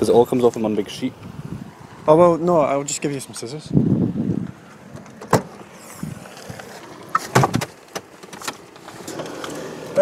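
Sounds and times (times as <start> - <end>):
tailgate latch clicks and knocks: 4.9 - 5.6, 7.1 - 8.9.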